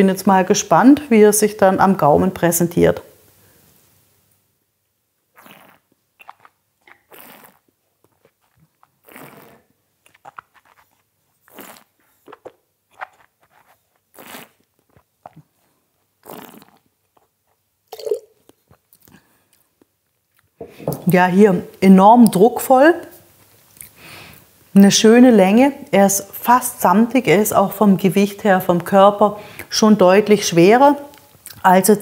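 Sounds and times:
slurping wine: 5.4s - 19.2s.

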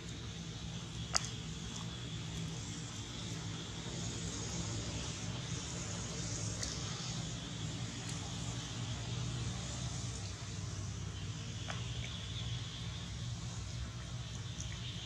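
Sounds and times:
high steady hiss: 0.0s - 15.0s
low even hum: 0.0s - 15.0s
faint ticks: 0.9s - 2.5s, 6.3s - 7.0s.

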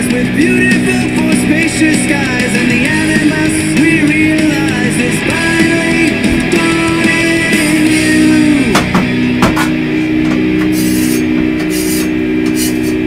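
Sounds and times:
punk rock music with guitar: 0.0s - 13.0s
metal scraper on griddle: 10.7s - 13.0s.

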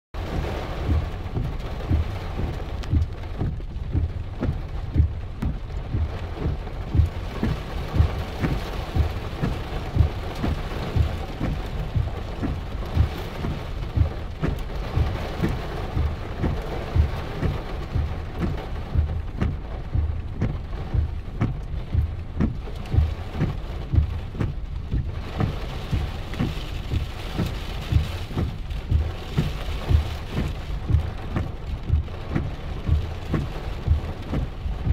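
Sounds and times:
heavy rain falling: 0.2s - 34.9s
raindrops thudding near microphone: 0.2s - 34.9s.

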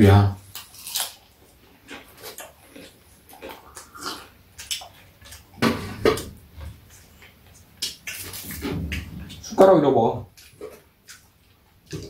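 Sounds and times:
fried chicken crunching: 0.4s - 5.5s, 6.9s - 9.0s
eating smacks: 1.9s - 9.5s, 10.3s - 12.0s.

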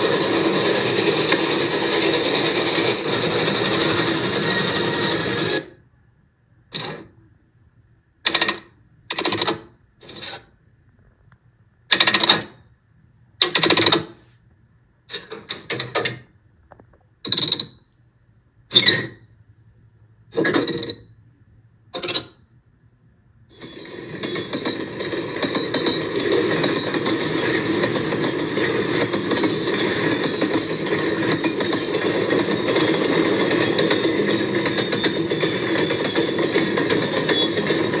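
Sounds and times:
steam train running: 0.0s - 5.7s, 23.5s - 38.0s.

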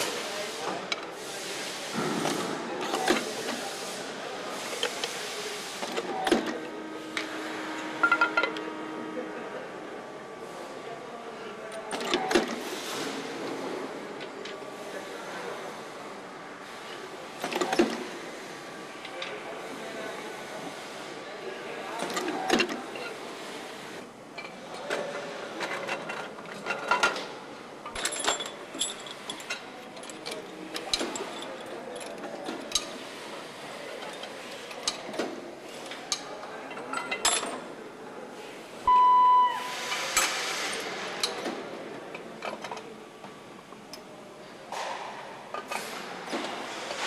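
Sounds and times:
metal parts clinking and knocking: 8.0s - 8.6s, 27.9s - 32.9s
short loud beep: 38.9s - 39.9s.

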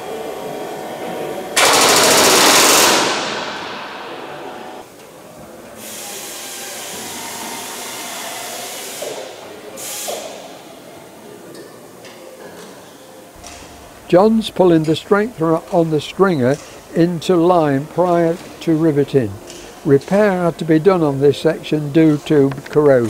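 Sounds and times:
workshop background noise: 0.0s - 23.0s
pneumatic rivet gun hammering: 1.6s - 3.7s.

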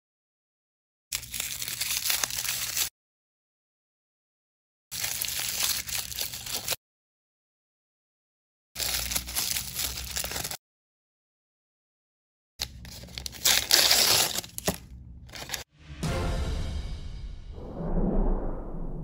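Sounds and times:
wrappers crinkling and tearing: 1.1s - 2.9s, 5.0s - 6.8s, 8.8s - 10.6s, 12.6s - 15.6s.

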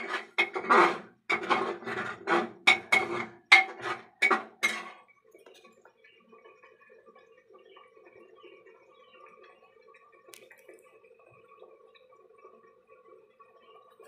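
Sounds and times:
metal spatula scraping a pot: 0.0s - 5.7s.

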